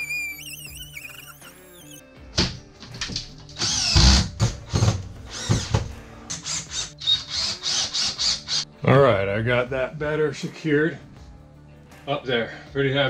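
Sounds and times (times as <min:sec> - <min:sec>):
faint background music: 0:00.0 - 0:13.0
power drill bursts: 0:03.6 - 0:04.3.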